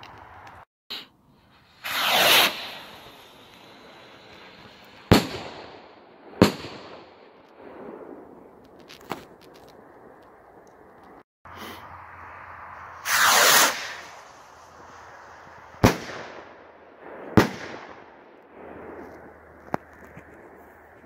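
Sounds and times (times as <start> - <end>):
firework rocket whoosh: 1.3 - 9.0, 11.6 - 21.0
firework bangs: 1.6 - 9.4, 13.0 - 20.5
small crack: 8.6 - 11.2, 19.0 - 21.0.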